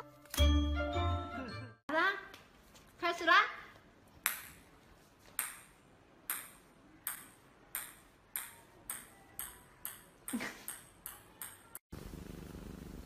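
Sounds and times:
small ball bouncing on tile floor: 0:04.2 - 0:04.7, 0:05.3 - 0:11.8.

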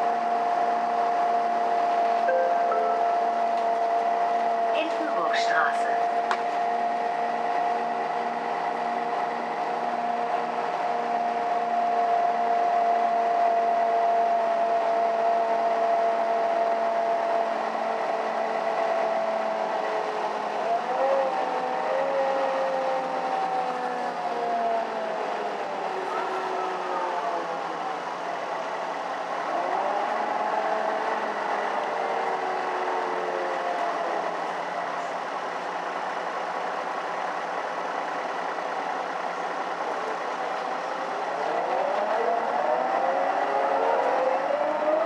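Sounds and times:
bus engine and drivetrain whine: 0:00.0 - 0:45.0.

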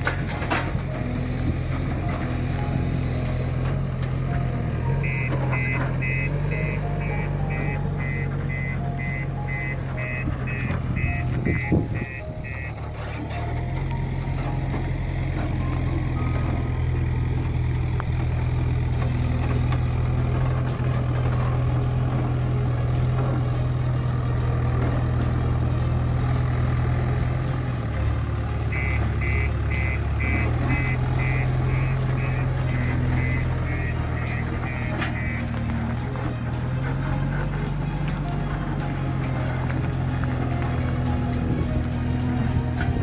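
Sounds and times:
diesel engine running: 0:00.0 - 0:43.0
reversing alarm beeping: 0:04.8 - 0:13.4, 0:28.7 - 0:35.8.

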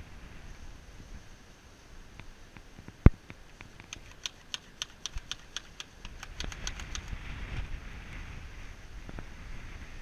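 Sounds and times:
plastic squirt gun clicking: 0:03.9 - 0:07.2.

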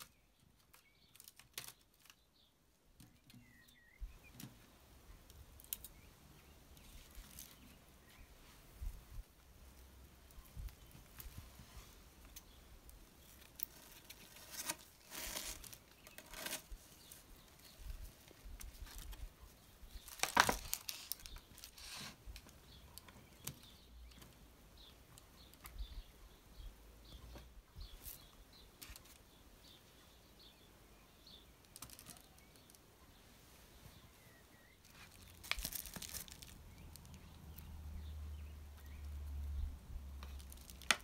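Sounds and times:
scissors cutting plastic net: 0:00.0 - 0:02.2
plastic mesh net rustling: 0:00.0 - 0:03.5, 0:06.8 - 0:08.6, 0:10.6 - 0:22.6, 0:34.8 - 0:37.6.

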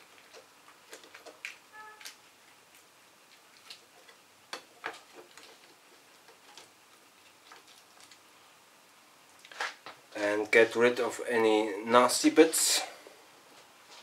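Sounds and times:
lobster shell clicking and crackling: 0:00.0 - 0:08.3.

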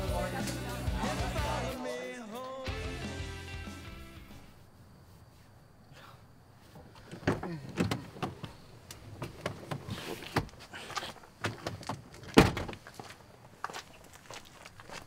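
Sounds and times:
truck door opening: 0:07.0 - 0:10.6, 0:11.4 - 0:12.8
truck door slamming shut: 0:12.4 - 0:12.7.

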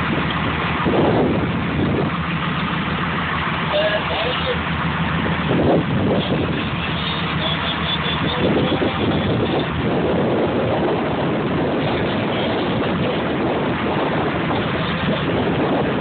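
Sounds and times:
ocean water noise: 0:00.0 - 0:16.0
wind on microphone: 0:00.0 - 0:16.0.

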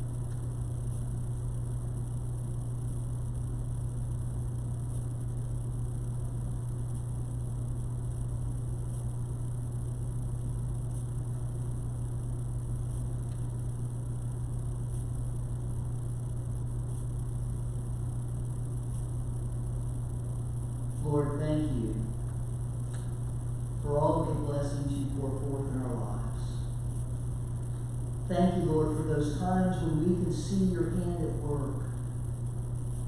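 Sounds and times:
constant hiss: 0:00.0 - 0:33.0
low electrical hum: 0:00.0 - 0:33.0.

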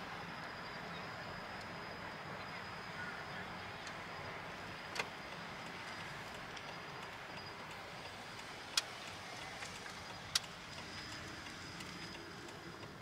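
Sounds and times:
car road and engine noise: 0:00.0 - 0:13.0
sharp clicks: 0:08.4 - 0:13.0.

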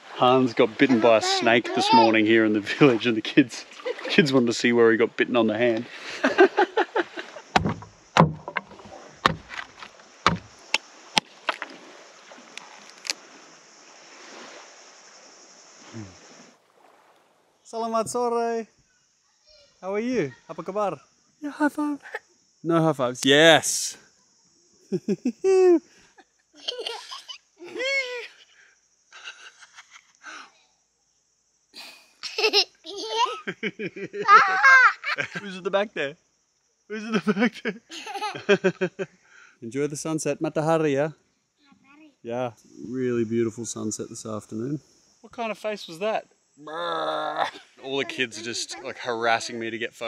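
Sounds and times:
children giggling: 0:00.8 - 0:03.0, 0:03.6 - 0:04.5, 0:05.9 - 0:07.5, 0:24.9 - 0:28.4, 0:29.2 - 0:30.2, 0:31.8 - 0:35.6, 0:37.0 - 0:39.1, 0:47.3 - 0:49.1
hatchet chopping coconut: 0:07.6 - 0:09.5, 0:10.3 - 0:10.6.

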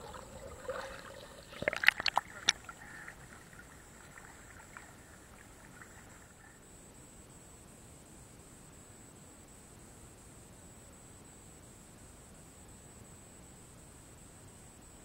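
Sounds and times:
sharp splashes and knocks: 0:00.0 - 0:06.2
river water splashing: 0:00.0 - 0:06.5
faint steady hiss: 0:00.0 - 0:15.0.

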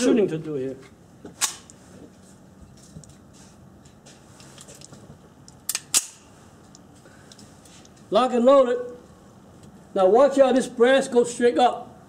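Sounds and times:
pistol click: 0:05.6 - 0:06.2.

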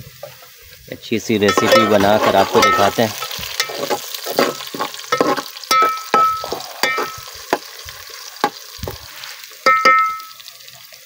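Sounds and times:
onions sizzling in oil: 0:00.0 - 0:11.0
ladle scraping and knocking pot: 0:01.5 - 0:07.7.

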